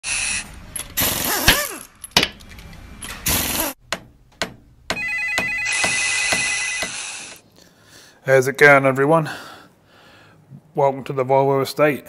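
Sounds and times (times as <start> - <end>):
bursts of machine noise: 0.1 - 1.9
sharp knocks: 3.2 - 7.0
high beeping tone: 5.0 - 7.2.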